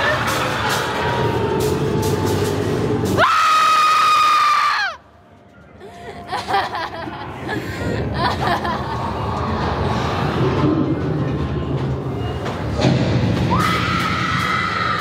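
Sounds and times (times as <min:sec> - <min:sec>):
shrill scream: 0:03.2 - 0:05.0.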